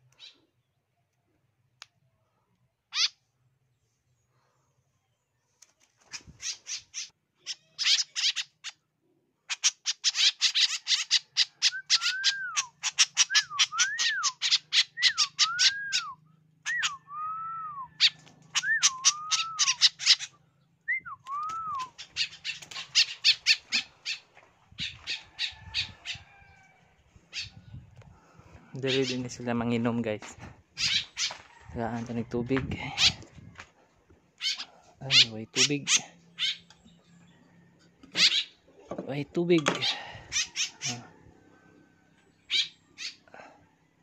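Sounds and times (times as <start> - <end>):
birds squawking calls: 2.9 - 3.2, 6.0 - 8.8, 9.4 - 17.0, 17.9 - 29.6, 30.7 - 31.6, 32.8 - 33.6, 34.4 - 38.8, 39.6 - 41.2, 42.3 - 43.3
whistled bird notes: 11.6 - 20.0, 20.8 - 22.4.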